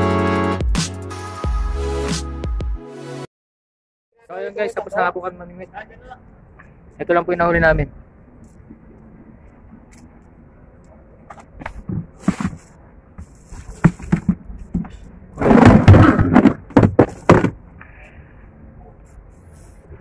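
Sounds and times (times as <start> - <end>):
scraping: 11.3 - 17.6
cooler lid knocks and thuds: 13.8 - 17.6.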